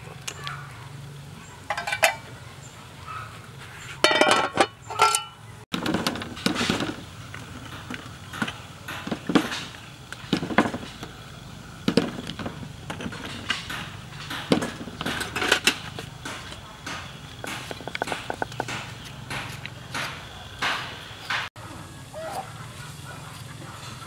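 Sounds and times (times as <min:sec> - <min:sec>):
metal spoon clinking on pot: 0:01.7 - 0:02.3, 0:04.0 - 0:05.4.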